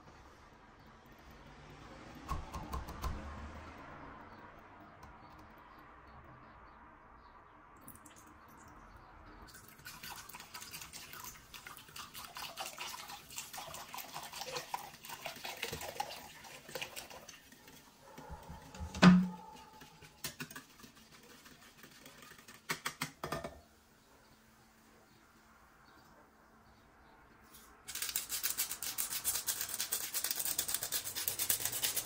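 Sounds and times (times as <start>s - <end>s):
wire whisk stirring: 9.8s - 23.0s, 27.9s - 32.0s.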